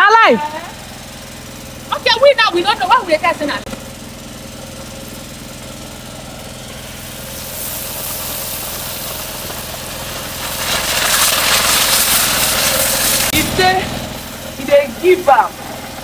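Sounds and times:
steady machine hum: 0:00.0 - 0:16.0
oil sizzling in a pan: 0:03.8 - 0:16.0
puree poured into hot oil: 0:05.1 - 0:14.6.

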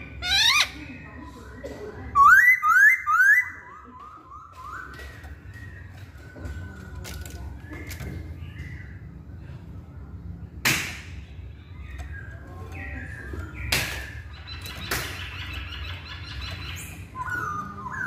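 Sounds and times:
bird whistled gliding song: 0:02.2 - 0:09.0, 0:11.7 - 0:18.0.

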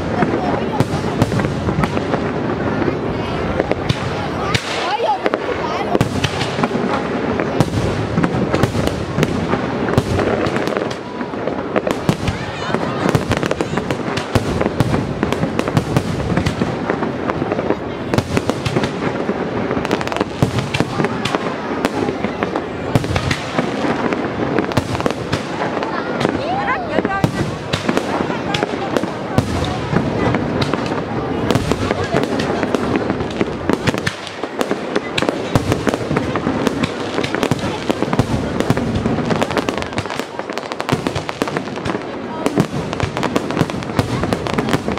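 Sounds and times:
fireworks crackling: 0:00.0 - 0:44.9
firework shells bursting: 0:27.0 - 0:44.9.

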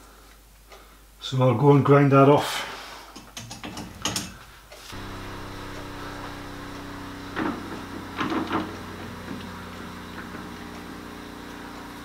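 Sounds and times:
workshop machine motor humming: 0:04.9 - 0:12.0.

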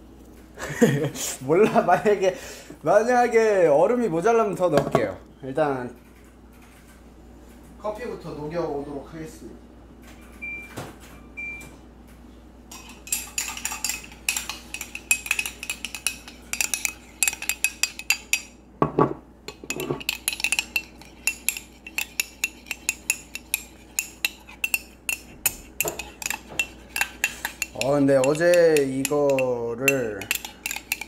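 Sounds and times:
spoon clinking in a cup: 0:12.7 - 0:18.6, 0:19.5 - 0:31.0.

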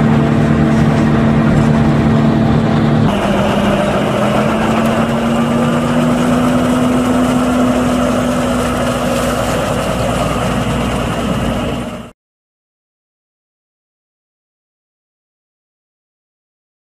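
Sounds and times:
tractor diesel engine running: 0:00.0 - 0:12.1.

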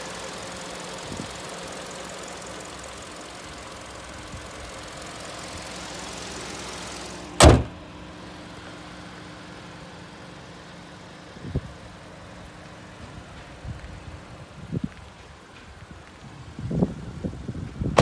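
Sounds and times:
car engine idling: 0:00.0 - 0:16.3
car hood slammed shut: 0:07.4 - 0:07.8
light thump: 0:07.4 - 0:07.8.

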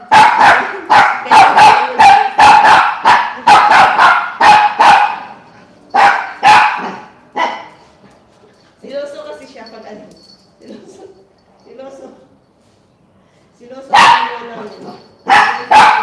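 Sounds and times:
small dog barking: 0:00.0 - 0:05.4, 0:06.0 - 0:07.8, 0:13.9 - 0:14.5, 0:15.3 - 0:16.0.

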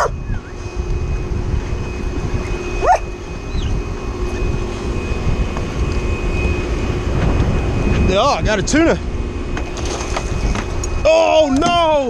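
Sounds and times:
boat motor: 0:00.0 - 0:12.0
wind rumble: 0:00.0 - 0:12.0
dog yipping: 0:02.8 - 0:03.1.

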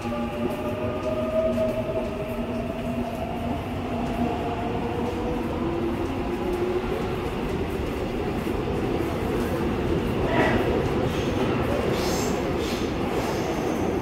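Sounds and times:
train low rumble: 0:00.0 - 0:14.0.

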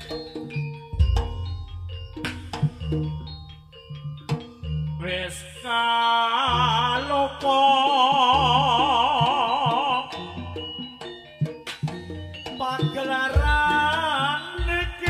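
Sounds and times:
drum strokes: 0:00.0 - 0:03.6
gamelan music: 0:00.0 - 0:15.0.

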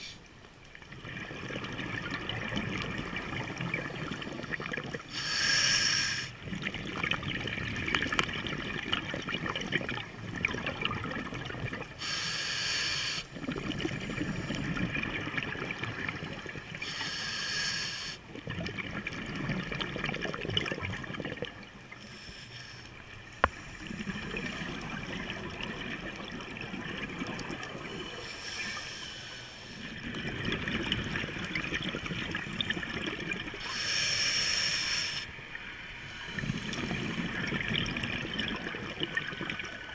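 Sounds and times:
exhaled bubbles hissing underwater: 0:00.9 - 0:39.9
diver breathing through regulator: 0:05.1 - 0:06.4, 0:12.0 - 0:13.3, 0:16.8 - 0:18.2, 0:22.0 - 0:24.5, 0:27.9 - 0:30.0, 0:33.6 - 0:35.3, 0:36.0 - 0:37.6.

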